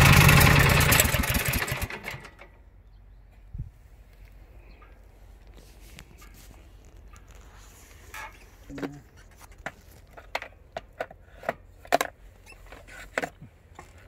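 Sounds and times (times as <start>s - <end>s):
plastic hoppers clicking and knocking: 8.7s - 14.0s.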